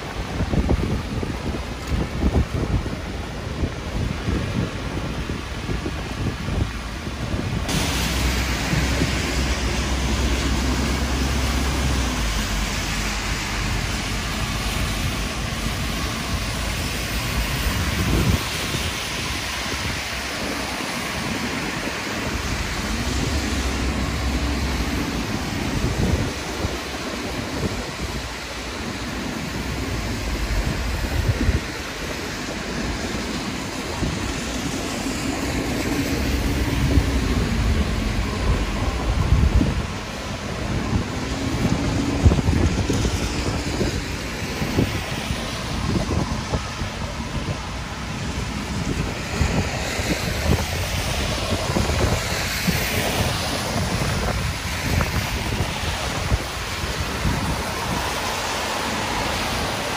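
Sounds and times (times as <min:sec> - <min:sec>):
heavy rain: 0:00.0 - 0:59.9
road traffic: 0:00.0 - 0:59.9
wind gusting on microphone: 0:00.0 - 0:59.9
low vehicle tone: 0:05.6 - 0:52.3.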